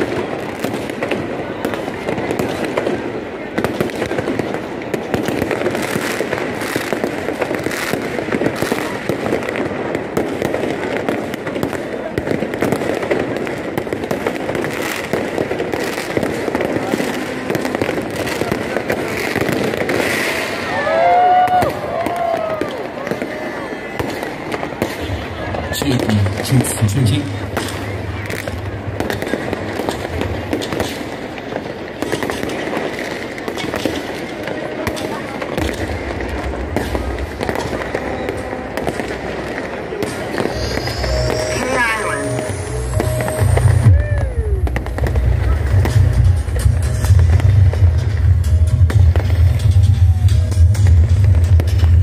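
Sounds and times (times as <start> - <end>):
fireworks crackling and banging: 0.0 - 52.0
fireworks hissing rushes: 4.6 - 21.0, 35.3 - 46.2
low rumble: 42.3 - 52.0.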